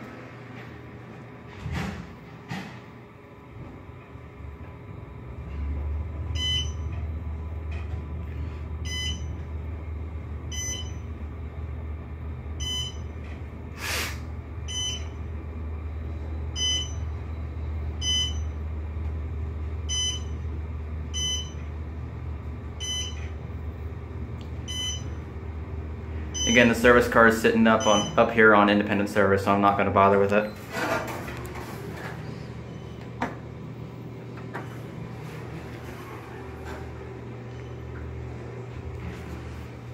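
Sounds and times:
elevator hum: 0:00.0 - 0:39.9
short electronic beeps: 0:27.8 - 0:28.2.

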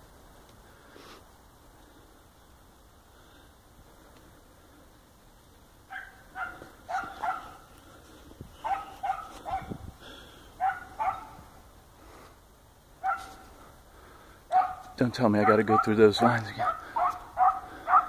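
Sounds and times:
dog barking: 0:05.9 - 0:07.7, 0:08.6 - 0:09.8, 0:10.6 - 0:11.5, 0:13.0 - 0:13.5, 0:14.5 - 0:18.0.

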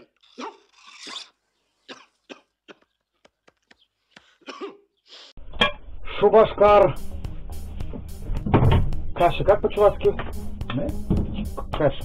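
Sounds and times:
man coughing: 0:01.9 - 0:02.9, 0:04.4 - 0:04.9.

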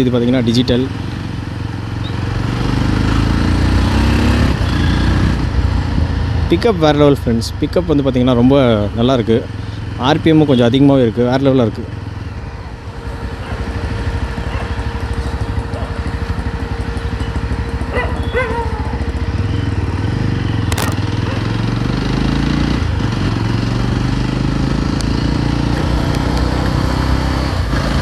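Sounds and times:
motorcycle engine accelerating: 0:00.0 - 0:28.0
sharp click: 0:20.7 - 0:21.0.

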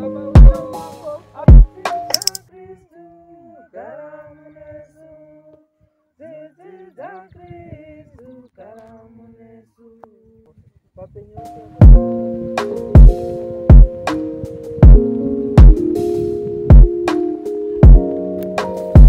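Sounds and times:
unaccompanied singing: 0:00.0 - 0:10.6.

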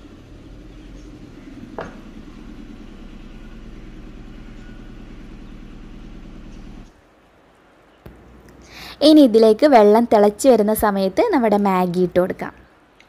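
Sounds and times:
low motor hum: 0:00.0 - 0:07.0.

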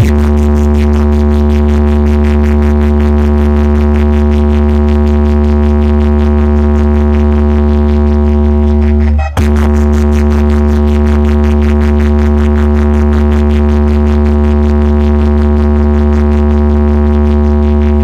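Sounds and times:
loud pulsing electronic drone: 0:00.0 - 0:18.0.

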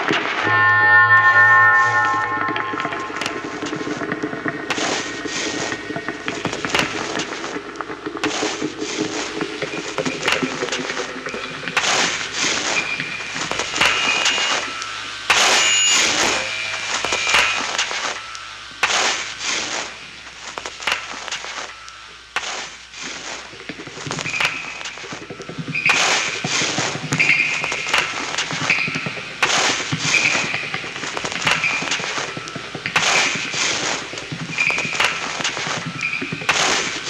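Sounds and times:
high squealing tones: 0:00.4 - 0:08.8
low drone: 0:00.4 - 0:15.2.

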